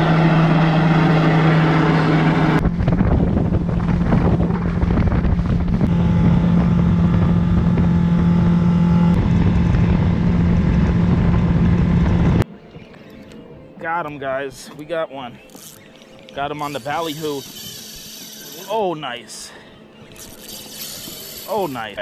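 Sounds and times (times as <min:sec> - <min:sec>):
outboard engine running: 0:00.0 - 0:12.4, 0:15.6 - 0:22.0
boat wake: 0:00.0 - 0:13.5, 0:15.3 - 0:22.0
droning hum: 0:00.0 - 0:13.8, 0:14.4 - 0:22.0
wind on microphone: 0:02.4 - 0:12.4.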